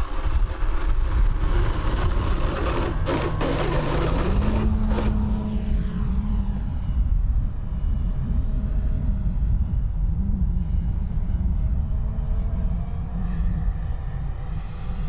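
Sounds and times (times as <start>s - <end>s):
electric propeller hum: 0.0s - 7.9s.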